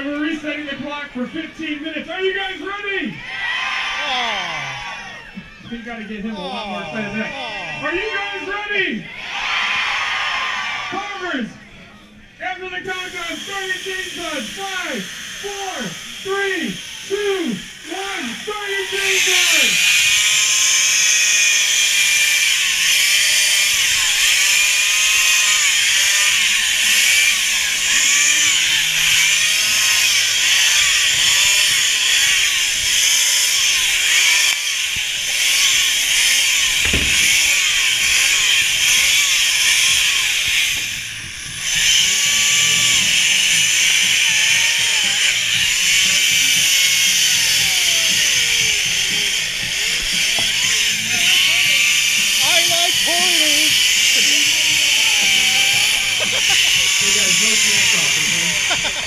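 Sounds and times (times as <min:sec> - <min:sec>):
chainsaws cutting ice: 0:12.8 - 0:59.0.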